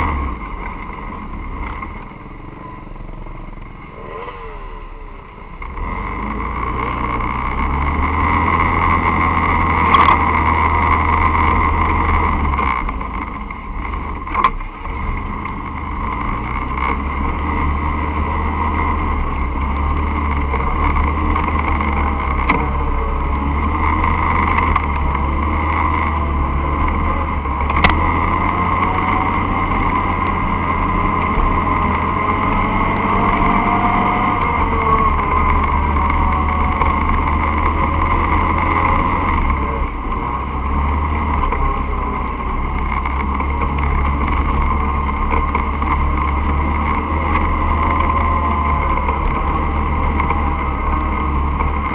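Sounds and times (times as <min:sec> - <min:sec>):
dirt bike engine running: 0:00.0 - 0:51.9.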